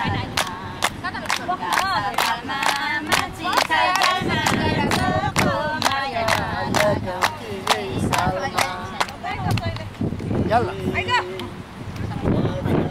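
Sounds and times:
group singing folk song: 0:00.0 - 0:09.8
hand-clapping: 0:00.3 - 0:09.9.

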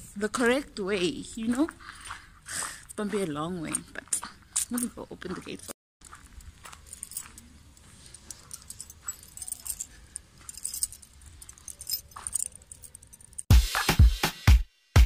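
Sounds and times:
keys jangling: 0:05.5 - 0:13.5.

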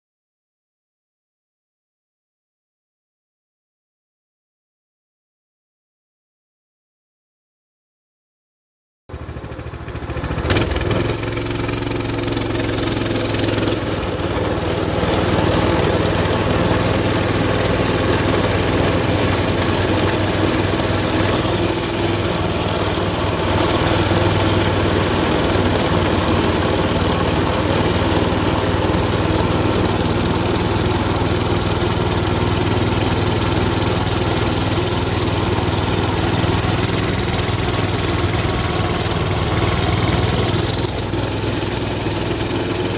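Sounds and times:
small engine running steadily: 0:09.1 - 0:42.9.

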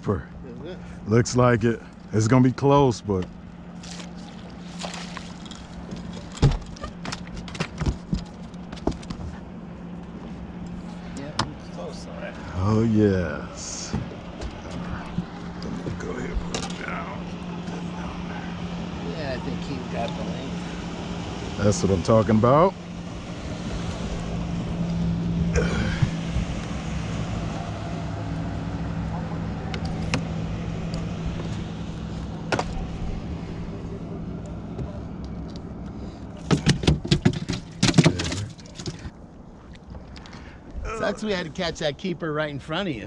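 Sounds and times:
outboard motor running: 0:00.0 - 0:41.7
net and fish knocking on metal hull: 0:36.5 - 0:39.1.

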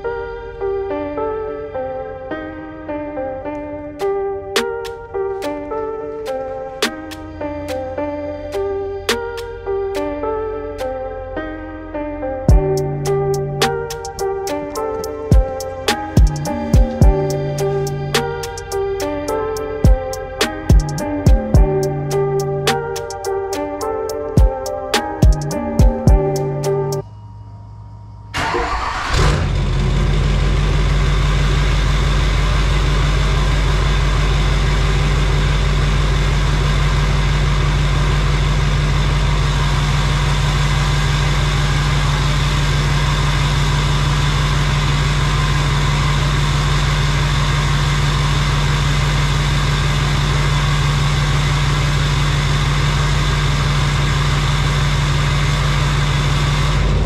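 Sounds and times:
diesel engine cranking and idling: 0:12.5 - 0:23.7, 0:28.4 - 0:57.0.

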